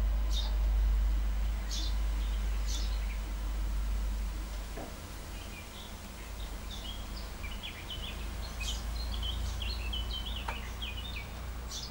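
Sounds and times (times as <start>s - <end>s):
songbirds chirping: 0.0s - 11.9s
steady low rumble: 0.0s - 11.9s.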